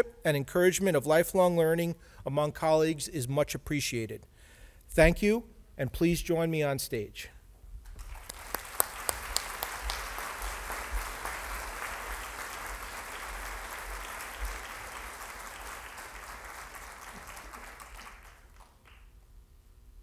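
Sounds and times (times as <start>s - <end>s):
audience applauding: 7.9s - 19.1s.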